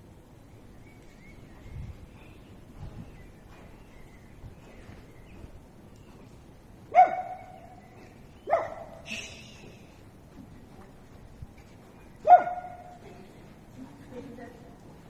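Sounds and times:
dog barking: 6.9s - 7.6s, 8.5s - 9.0s, 12.2s - 13.0s.

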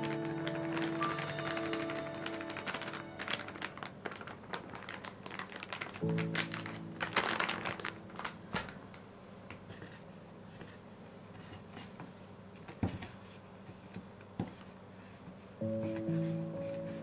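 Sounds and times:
hands handling noodles: 0.0s - 9.0s.

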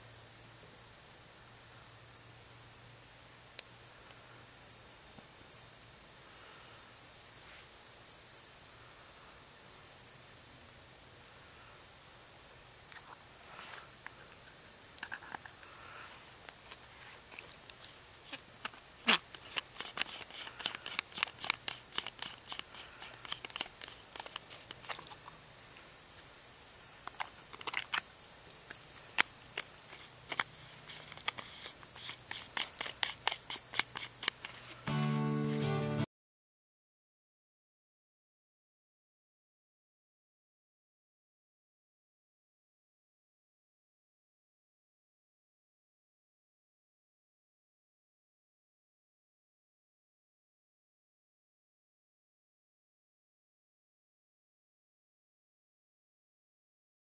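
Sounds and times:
insects droning: 0.0s - 36.1s.

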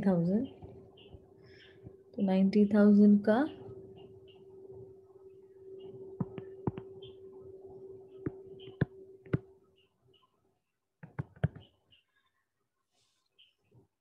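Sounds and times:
faint steady hum: 0.0s - 10.8s
stylus tapping on touchscreen: 6.2s - 7.2s, 8.2s - 9.5s, 11.0s - 11.7s.

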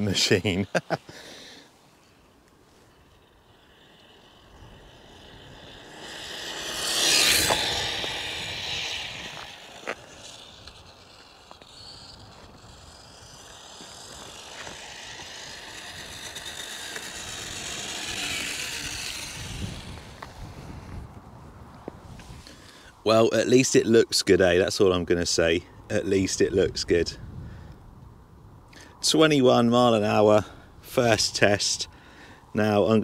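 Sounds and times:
rc truck motor whine: 0.0s - 21.2s
tyre noise: 0.0s - 22.9s.

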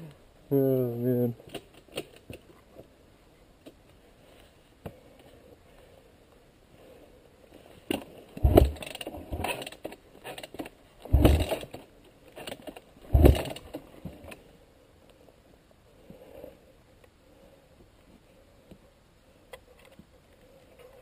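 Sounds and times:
dirt bike thumping and rattling: 7.8s - 14.3s.

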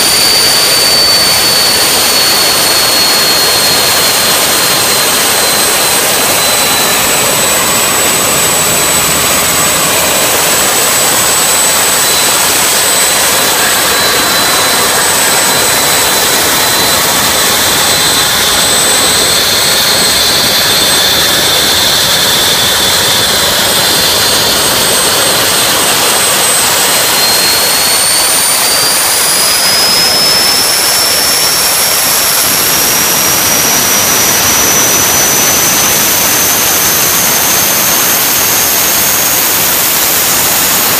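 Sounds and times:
rushing noise: 0.0s - 40.9s
turbine whine: 0.0s - 40.9s.

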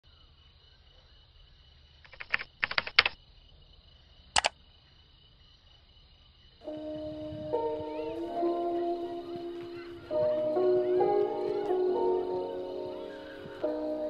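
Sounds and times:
rapid clicking bursts: 2.1s - 3.2s, 4.4s - 4.6s.

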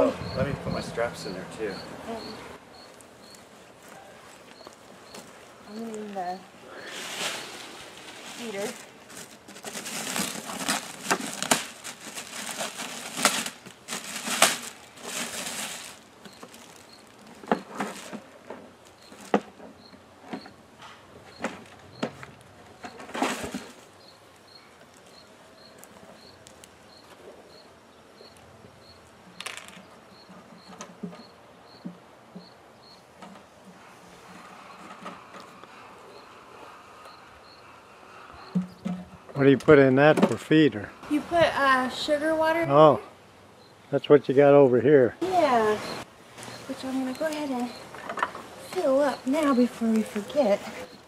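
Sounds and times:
plastic bag rustling: 2.9s - 19.5s, 22.8s - 26.7s, 45.2s - 51.0s.

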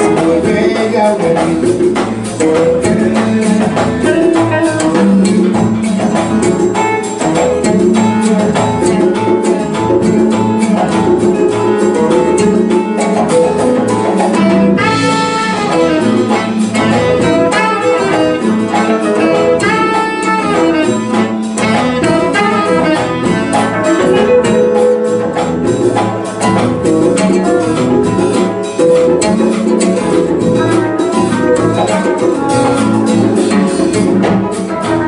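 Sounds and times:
jazz fusion band playing: 0.0s - 35.0s
bright horn line: 14.2s - 26.6s.

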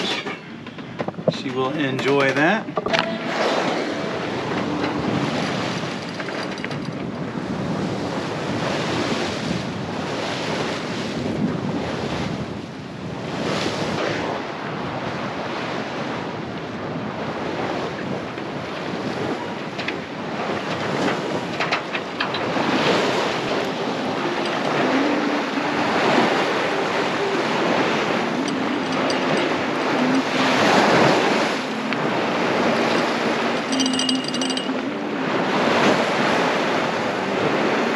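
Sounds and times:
water rushing along hull: 0.0s - 37.9s
wind buffeting microphone: 0.0s - 37.9s.

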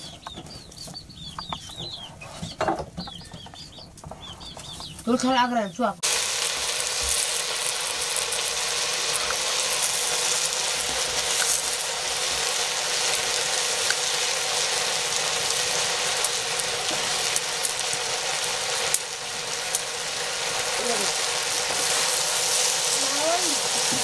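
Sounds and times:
greens sizzling in a wok: 5.0s - 24.0s.

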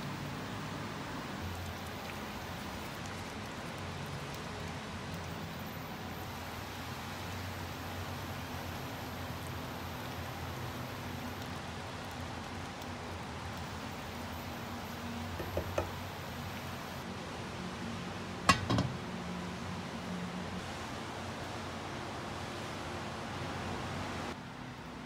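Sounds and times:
curry simmering in a pan: 0.0s - 16.8s
steady hiss: 0.0s - 17.1s
wooden spatula knocking a pan: 15.4s - 15.9s.

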